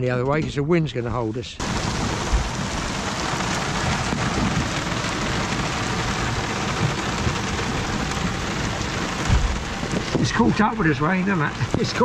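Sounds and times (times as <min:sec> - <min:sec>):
heavy rain on boat canopy: 0:01.6 - 0:12.0.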